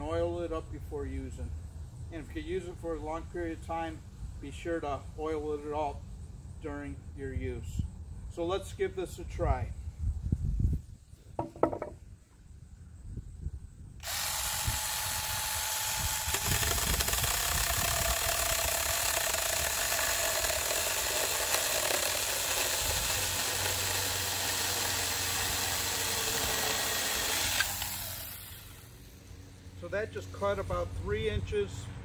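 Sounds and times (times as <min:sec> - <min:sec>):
electric chainsaw cutting wood: 0:14.0 - 0:29.0.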